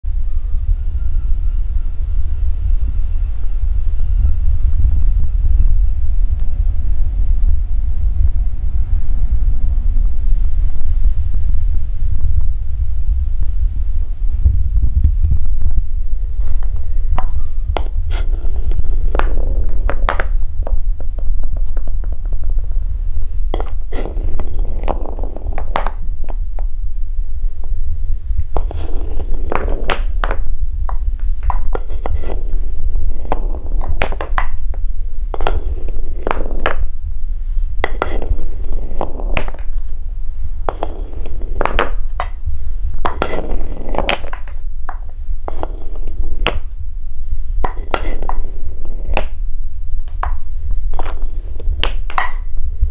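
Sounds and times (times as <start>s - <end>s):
steady low hum: 0.0s - 52.9s
marbles clacking on wooden track: 17.2s - 22.5s, 23.5s - 26.7s, 28.6s - 34.6s, 35.3s - 36.9s, 37.8s - 39.8s, 40.7s - 42.4s, 43.0s - 46.7s, 47.6s - 49.4s, 50.2s - 52.5s.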